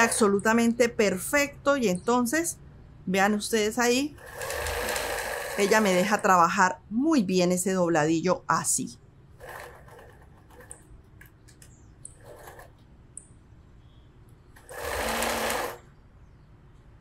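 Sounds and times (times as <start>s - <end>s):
sewing machine stitching: 0.0s - 0.4s, 4.1s - 6.3s, 9.4s - 10.9s, 12.1s - 12.8s, 14.6s - 15.8s.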